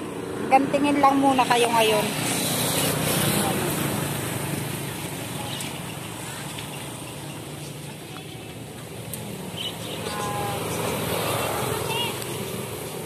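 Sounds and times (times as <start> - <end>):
hiss-like outdoor wash: 0.0 - 13.0
faint voices: 5.0 - 12.8.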